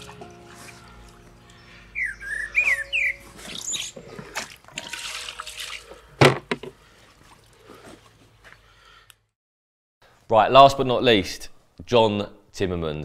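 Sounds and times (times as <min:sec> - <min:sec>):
water splashing and rustling: 0:00.0 - 0:08.5
bird chirping: 0:01.4 - 0:04.4.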